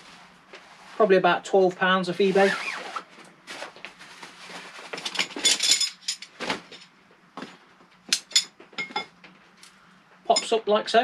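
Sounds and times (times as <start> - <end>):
nylon rustling: 2.1 - 5.0
metal poles clinking: 5.0 - 6.9.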